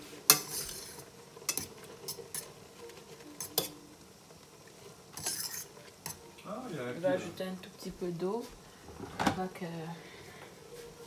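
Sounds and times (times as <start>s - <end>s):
fork clinking against metal pot: 0.3s - 2.5s, 3.4s - 3.8s.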